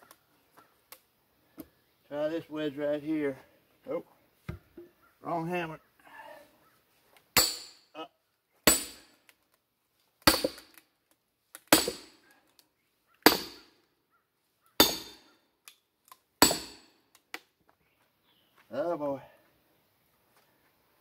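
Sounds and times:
hammer ringing on steel wedge: 0:07.4 - 0:07.8, 0:14.8 - 0:15.3.

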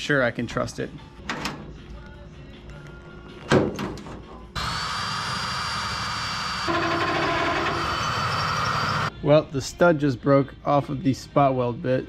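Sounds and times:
power drill whining: 0:04.6 - 0:09.1.

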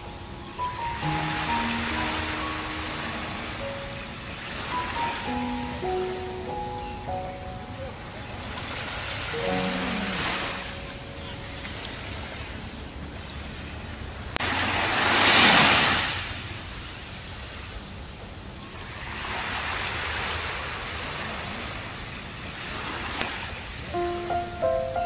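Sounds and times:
small waves washing on sand: 0:08.4 - 0:24.3.

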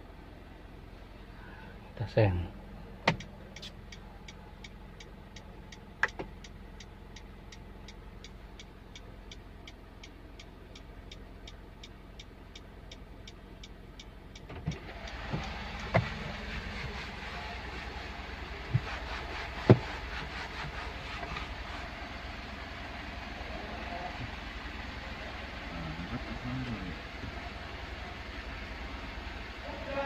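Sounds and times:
turn signal ticking: 0:02.0 - 0:23.3.

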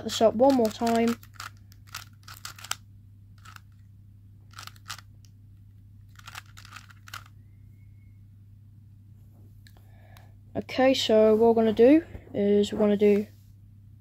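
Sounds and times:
speed cube clicking turns: 0:00.2 - 0:02.8, 0:03.4 - 0:03.7, 0:04.5 - 0:05.1, 0:06.1 - 0:07.3.

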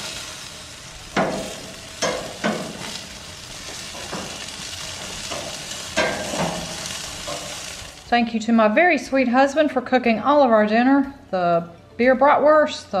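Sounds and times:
sausages sizzling on a grill: 0:00.0 - 0:08.2.

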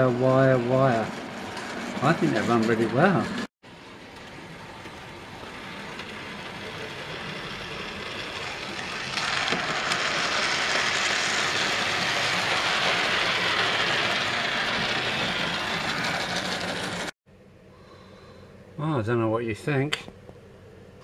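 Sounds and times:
wheels rattling on rails: 0:00.0 - 0:17.1
model train motor whirring: 0:04.1 - 0:17.1.

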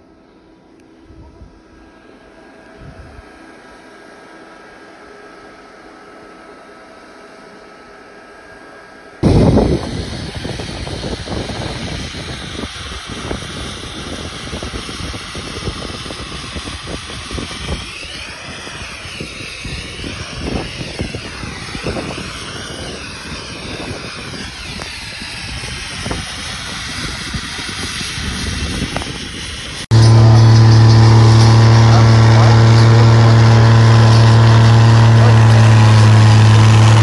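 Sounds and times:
snowmaking gun roaring: 0:00.0 - 0:37.0
wind buffeting microphone: 0:09.2 - 0:37.0.

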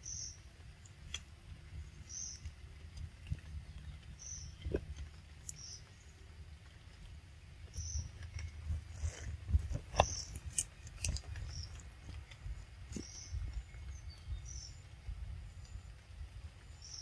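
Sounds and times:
sharp clicks and rustles: 0:00.6 - 0:14.0.

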